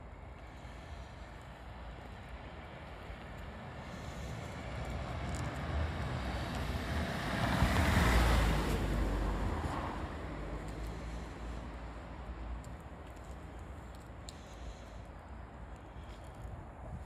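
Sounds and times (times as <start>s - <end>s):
car passing by: 3.2s - 12.8s.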